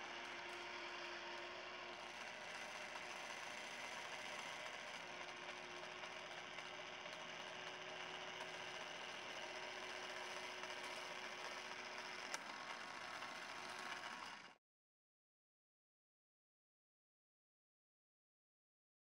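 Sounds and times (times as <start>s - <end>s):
jar opener motor whirring: 0.0s - 14.6s.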